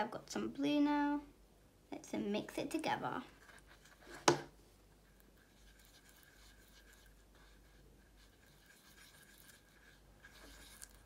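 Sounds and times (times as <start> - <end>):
paintbrush scraping on plastic palette: 3.2 - 11.0.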